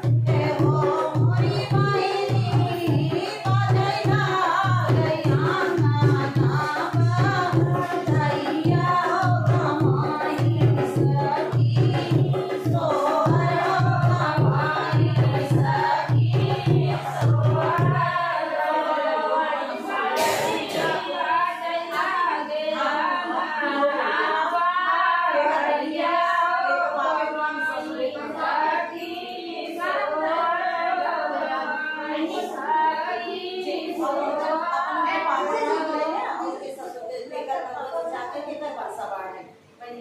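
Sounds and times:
hand drum beating: 0:00.0 - 0:18.1
women singing folk song: 0:00.0 - 0:36.8.

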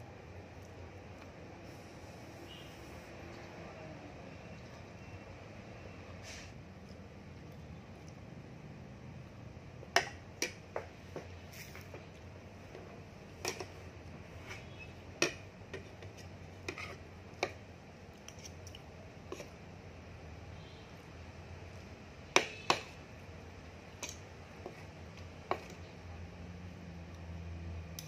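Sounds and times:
fork scraping on plate: 0:16.0 - 0:17.6.

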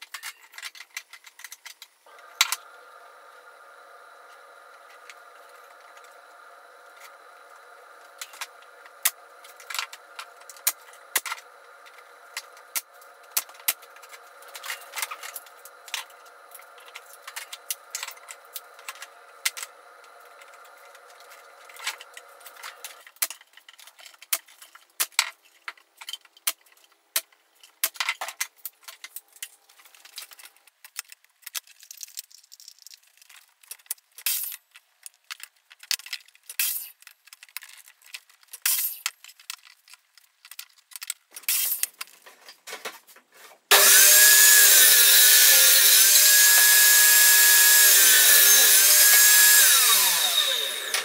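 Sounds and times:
steady hum: 0:02.1 - 0:23.0
pneumatic nailer firing into wood: 0:43.7 - 0:51.0.

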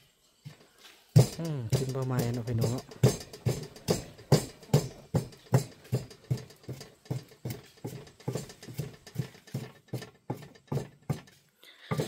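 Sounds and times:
rhythmic sharp knocking: 0:01.1 - 0:12.0.

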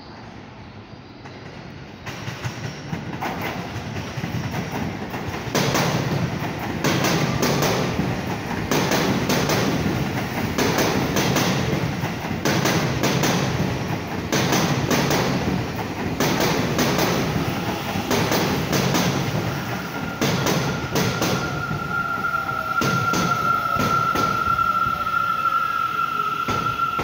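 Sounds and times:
train wheels clacking over rail joints: 0:01.3 - 0:21.7
steady high whine: 0:17.2 - 0:27.0.

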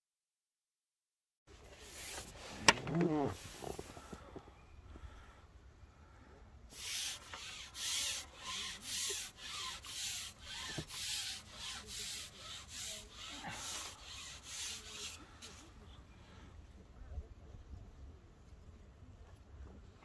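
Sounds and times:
rhythmic rubbing strokes: 0:06.7 - 0:15.6.

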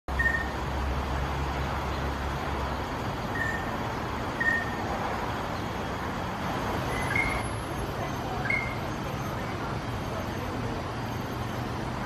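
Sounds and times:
traffic hum: 0:00.1 - 0:12.0
bird whistling: 0:00.2 - 0:00.6, 0:03.3 - 0:03.7, 0:04.4 - 0:04.8, 0:06.9 - 0:07.4, 0:08.4 - 0:08.8.

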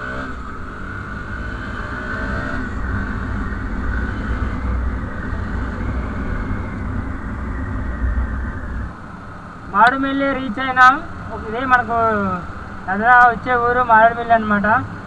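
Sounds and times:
motorcycle engine running: 0:00.0 - 0:09.5
low wind rumble on microphone: 0:00.0 - 0:15.0.

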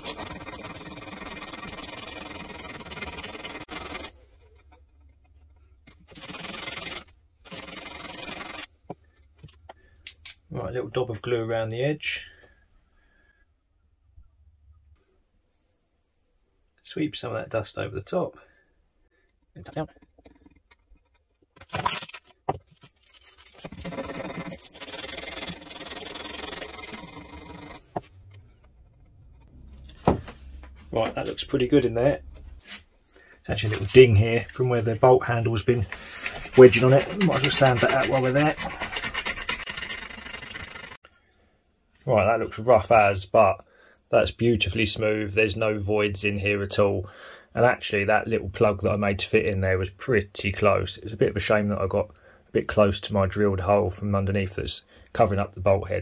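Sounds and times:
sandpaper rubbing wood: 0:00.0 - 0:09.2, 0:23.0 - 0:32.8, 0:33.6 - 0:41.0.

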